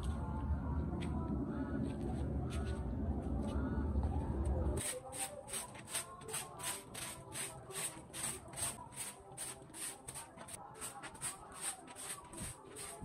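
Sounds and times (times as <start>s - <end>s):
broom sweeping dirt: 4.8s - 13.0s.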